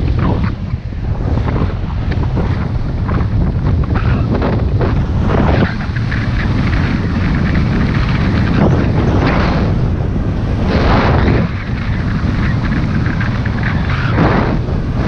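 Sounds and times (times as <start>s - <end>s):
wind buffeting microphone: 0.0s - 15.0s
skis scraping through snow: 4.9s - 9.8s.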